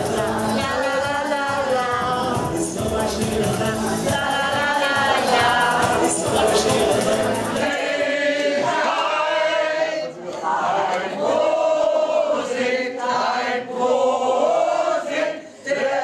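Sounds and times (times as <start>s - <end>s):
group singing in chorus: 0.0s - 16.0s.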